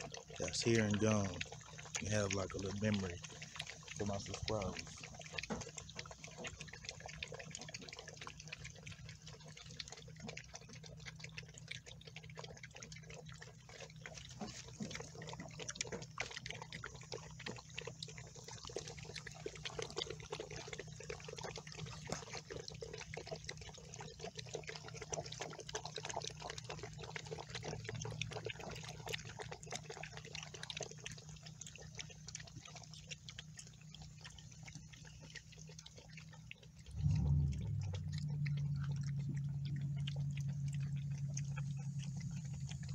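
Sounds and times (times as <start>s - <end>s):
puppies eating kibble: 0.0s - 42.9s.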